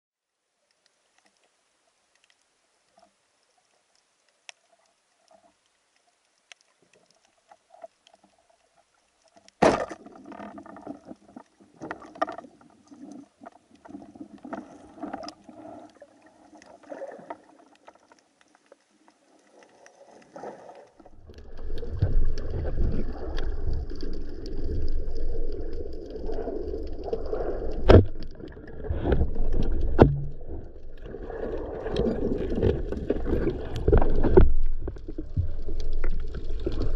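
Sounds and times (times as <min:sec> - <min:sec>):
faint underwater clicks: 0:00.5 - 0:36.9
water sloshing and knocking: 0:27.9 - 0:30.6.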